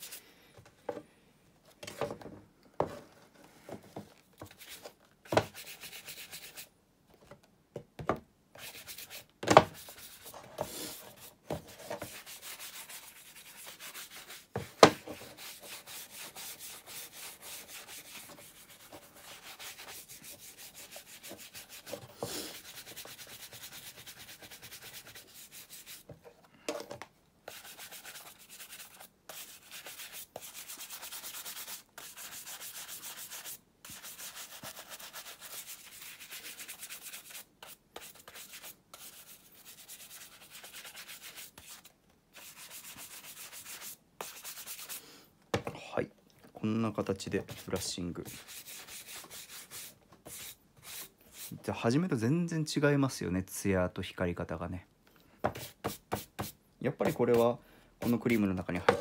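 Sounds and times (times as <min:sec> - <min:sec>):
handling scrapes and taps: 0:00.6 - 0:01.1, 0:01.7 - 0:05.6, 0:26.0 - 0:27.1, 0:55.4 - 0:59.0.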